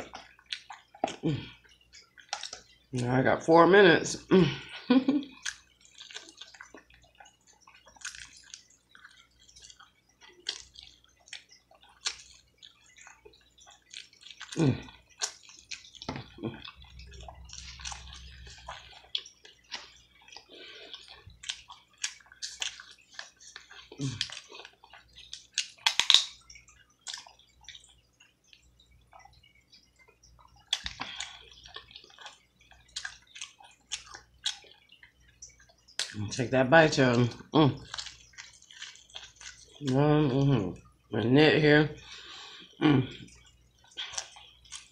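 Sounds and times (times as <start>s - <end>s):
wet chewing and smacking: 0.0s - 3.5s, 4.6s - 41.2s, 42.0s - 44.9s
sticky tearing of meat: 13.8s - 26.4s.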